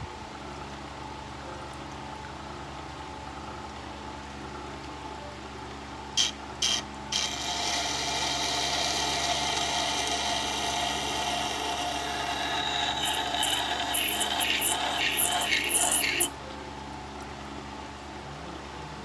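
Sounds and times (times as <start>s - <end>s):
sharpener motor humming: 6.2s - 16.3s
blade grinding on stone: 6.7s - 16.3s.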